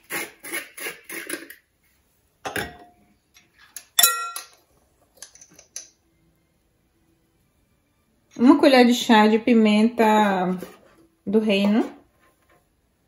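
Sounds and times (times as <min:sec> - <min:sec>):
metal spoon clinking glass bowl: 0:03.8 - 0:04.6.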